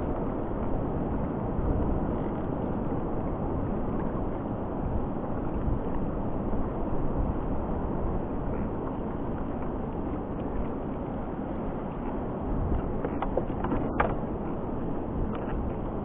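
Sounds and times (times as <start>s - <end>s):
wind blowing across microphone: 0.0s - 16.0s.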